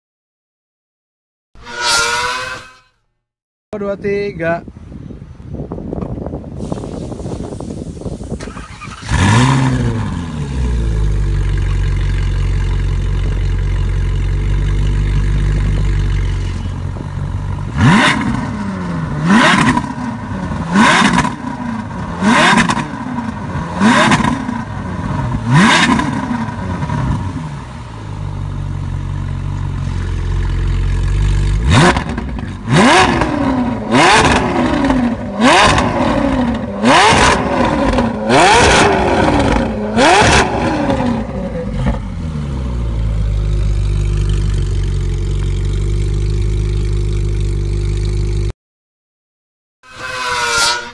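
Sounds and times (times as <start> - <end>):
sports car engine revving: 17.6 - 27.4, 31.0 - 42.8.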